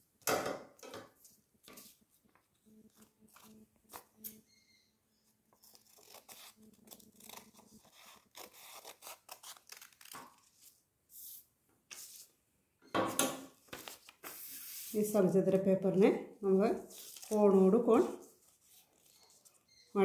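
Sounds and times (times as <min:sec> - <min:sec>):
paper rustling: 0:01.2 - 0:04.2, 0:13.6 - 0:15.0, 0:16.9 - 0:19.7
scissors snipping paper: 0:05.6 - 0:10.4.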